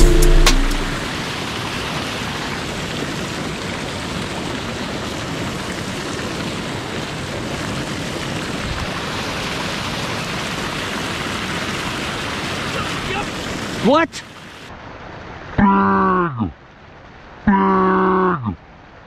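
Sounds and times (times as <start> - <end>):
fast-flowing river water: 0.8 - 14.8.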